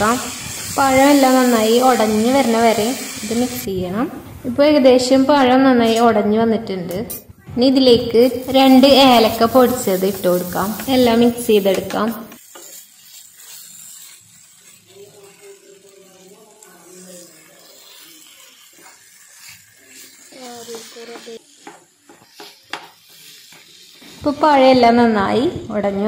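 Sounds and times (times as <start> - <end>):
spatula scraping frying pan: 8.2 - 24.6.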